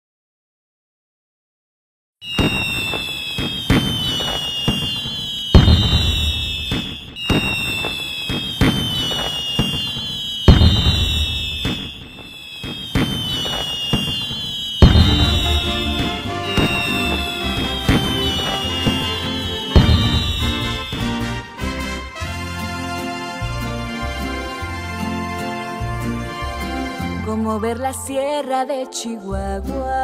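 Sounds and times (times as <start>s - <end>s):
firework whistles falling in pitch: 2.2s - 22.4s
firework bangs and crackles: 2.2s - 25.7s
loud firework booms: 2.3s - 22.4s.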